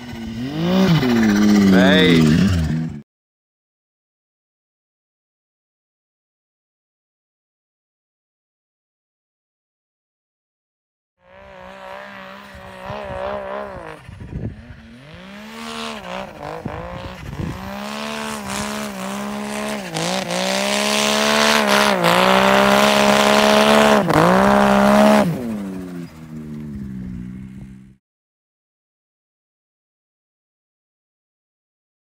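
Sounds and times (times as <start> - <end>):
snowmobile engine revving: 0.0 - 3.0, 11.2 - 28.0.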